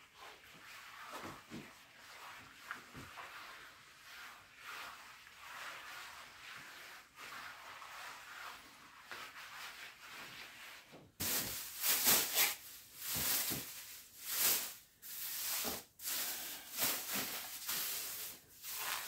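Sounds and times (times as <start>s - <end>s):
cloth cover rustling: 11.2s - 19.0s.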